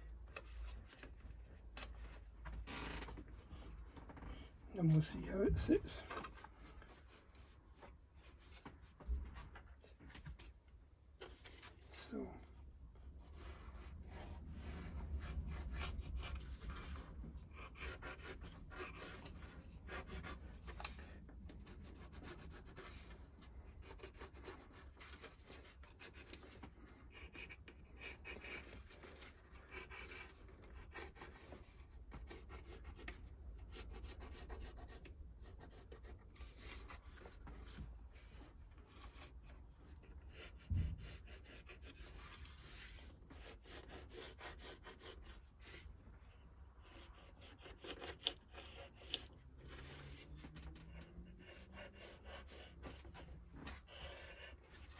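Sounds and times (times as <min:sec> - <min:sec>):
pencil scratching on wood: 0:13.0 - 0:54.9.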